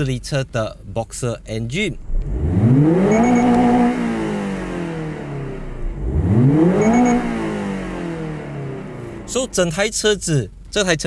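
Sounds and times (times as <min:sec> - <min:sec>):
car engine revving: 0:01.9 - 0:10.3.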